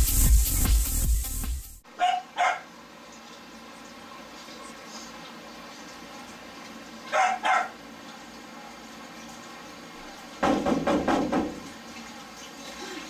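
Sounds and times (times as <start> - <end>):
dog barking: 1.9 - 2.7, 7.1 - 7.8.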